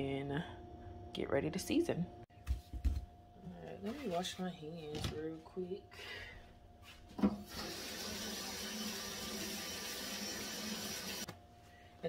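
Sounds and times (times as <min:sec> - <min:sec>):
water running into sink: 0:07.3 - 0:11.3.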